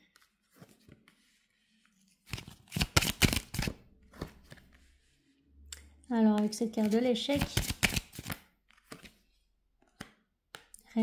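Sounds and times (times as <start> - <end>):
cards snapping and flicking: 2.3 - 3.7, 7.4 - 9.0.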